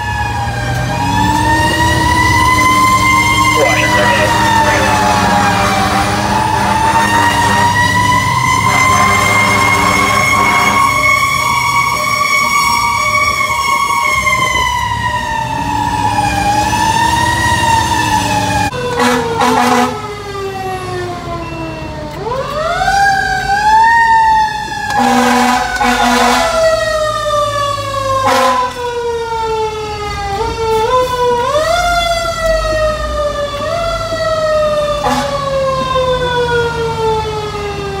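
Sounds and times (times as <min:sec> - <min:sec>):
fire engine siren wailing: 0:00.0 - 0:38.0
air horn blasts: 0:03.6 - 0:08.0, 0:08.6 - 0:11.0, 0:19.0 - 0:20.0, 0:25.0 - 0:26.6, 0:28.2 - 0:28.7, 0:35.0 - 0:35.4.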